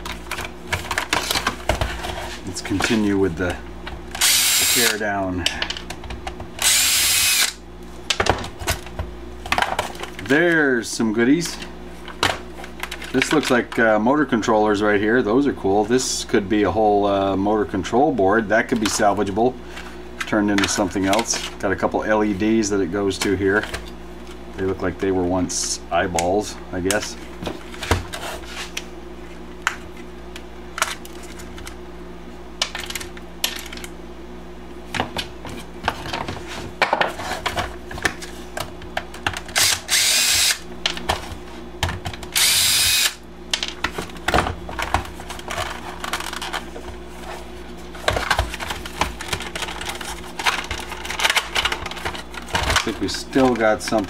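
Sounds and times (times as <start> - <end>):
cordless drill whining: 4.2 - 5.0, 6.6 - 7.6, 39.6 - 40.6, 42.4 - 43.2.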